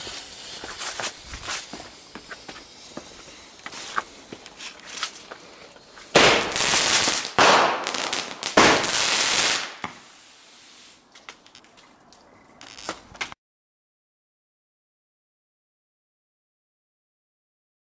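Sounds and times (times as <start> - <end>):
small firework cracks: 0.0 - 10.3, 12.6 - 13.4
firework bursts hissing and crackling: 0.0 - 11.1, 12.6 - 12.9.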